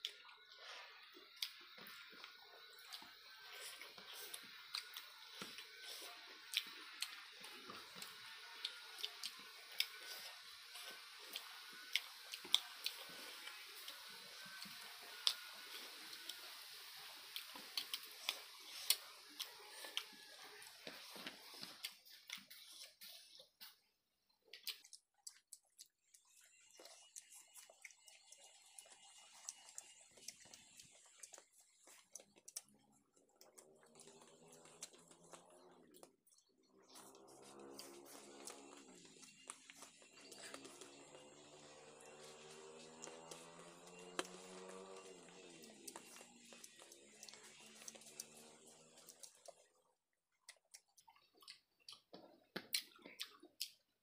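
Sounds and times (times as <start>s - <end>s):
chewing: 0.0s - 54.0s
wet mouth clicks and smacks: 24.5s - 35.4s, 50.4s - 53.8s.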